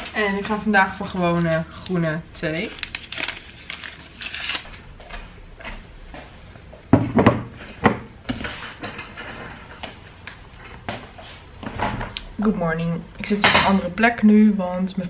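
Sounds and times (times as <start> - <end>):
paper sachet torn open: 2.7 - 4.7
desk chair knocking and bumping: 6.9 - 9.2.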